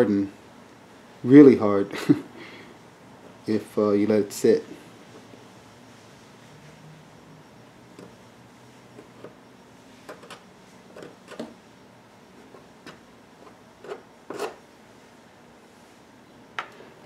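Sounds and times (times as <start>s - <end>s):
blade scraping plastic: 12.5s - 14.6s.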